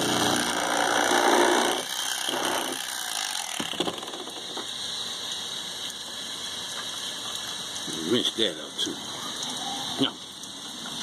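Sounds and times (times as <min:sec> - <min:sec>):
electric knife sawing: 0:00.0 - 0:04.4.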